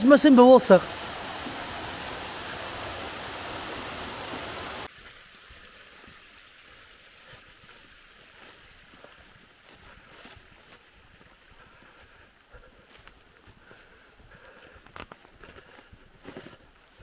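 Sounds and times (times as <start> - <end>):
waterfall rushing: 0.0 - 5.0
water running along channel: 0.0 - 14.8.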